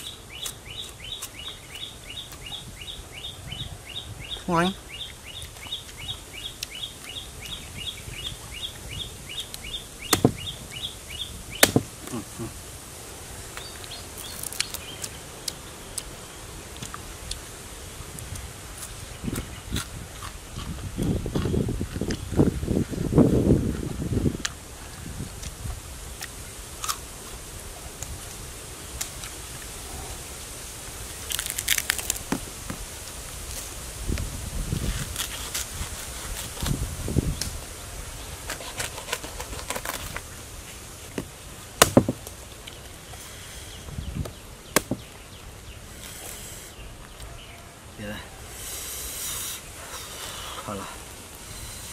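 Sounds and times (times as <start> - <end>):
bird chirping: 0.0 - 12.6
background hiss: 0.0 - 51.9
knife cutting crackling palm: 9.5 - 10.5, 11.6 - 12.2, 14.2 - 15.6, 31.3 - 32.8, 34.9 - 36.8, 38.4 - 40.3, 41.2 - 42.4, 44.2 - 45.1
knife chopping palm heart: 10.1 - 10.5, 11.6 - 11.9, 41.8 - 42.2, 44.8 - 45.1.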